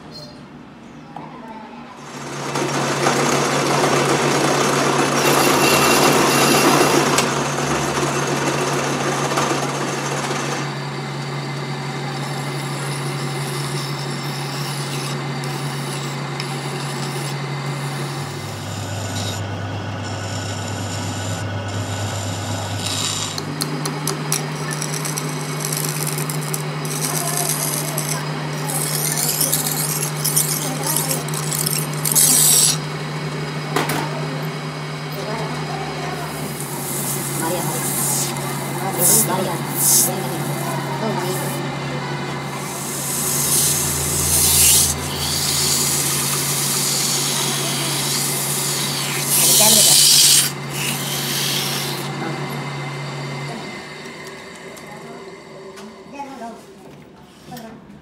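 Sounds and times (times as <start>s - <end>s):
metal lathe humming: 2.1s - 56.4s
file rasping on steel: 12.2s - 32.8s, 42.5s - 52.1s.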